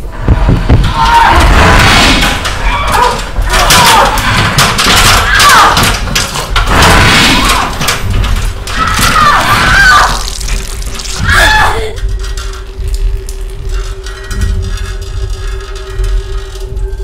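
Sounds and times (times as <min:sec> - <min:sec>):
crashing thrashing noise: 0:00.0 - 0:17.0.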